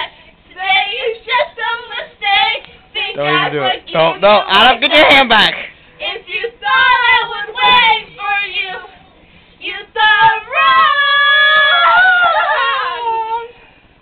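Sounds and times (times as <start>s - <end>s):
young person singing unaccompanied: 0.0s - 4.2s, 6.0s - 9.0s, 9.6s - 13.5s.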